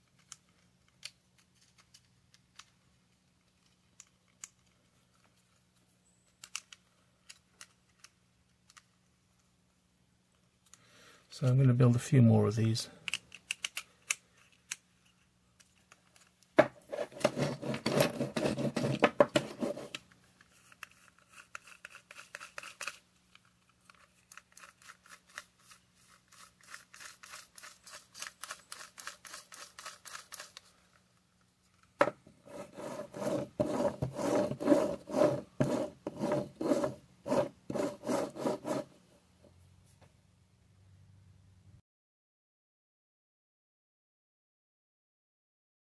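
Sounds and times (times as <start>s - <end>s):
screwdriver rasping on plastic: 16.9s - 20.0s, 32.5s - 38.9s.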